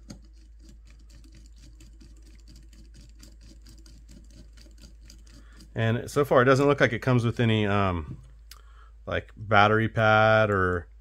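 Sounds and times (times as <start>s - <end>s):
screwdriver ticking and scraping: 0.0s - 6.9s.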